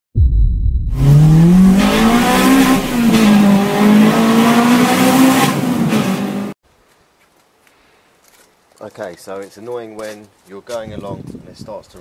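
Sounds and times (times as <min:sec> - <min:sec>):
car engine accelerating hard: 0:00.9 - 0:06.6.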